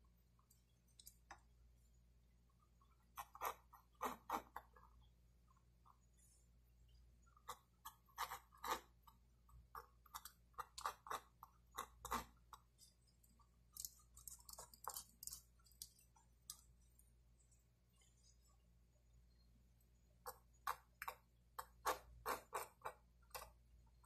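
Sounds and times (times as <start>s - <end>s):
pencil scratching on paper: 3.0s - 5.0s, 7.4s - 13.0s, 20.3s - 23.6s.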